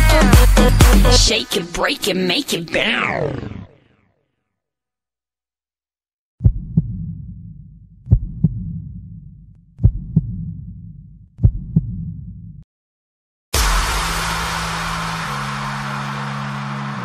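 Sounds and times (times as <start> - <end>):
heartbeat double thumps: 6.4 - 12.6.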